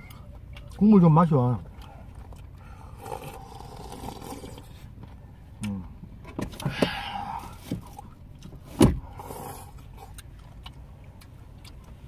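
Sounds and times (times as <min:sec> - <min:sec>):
slurping soup: 0:02.7 - 0:04.9.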